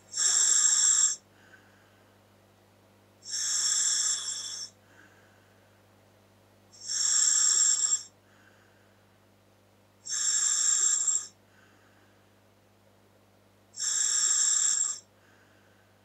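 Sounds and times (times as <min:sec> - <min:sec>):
faint breath sound: 0:00.1 - 0:02.3, 0:03.2 - 0:05.9, 0:08.1 - 0:09.2, 0:11.3 - 0:12.4, 0:15.0 - 0:16.0.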